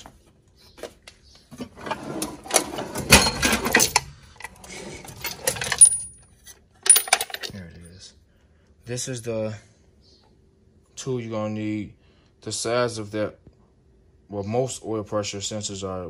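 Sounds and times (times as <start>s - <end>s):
metal tools rattling in drawer: 1.6s - 7.8s.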